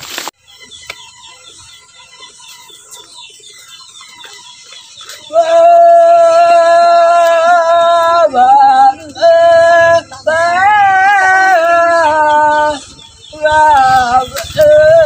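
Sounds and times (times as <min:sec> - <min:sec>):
man singing long notes: 0:05.3 - 0:15.0.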